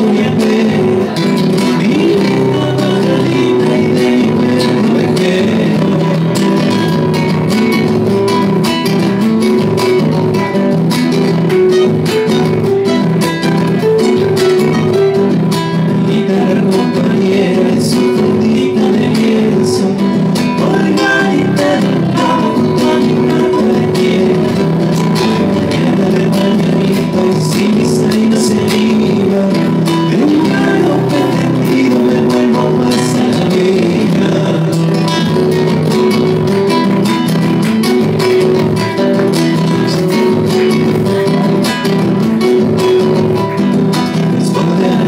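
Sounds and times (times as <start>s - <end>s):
plucked acoustic guitar: 0.0s - 45.0s
strummed acoustic guitar: 0.0s - 45.0s.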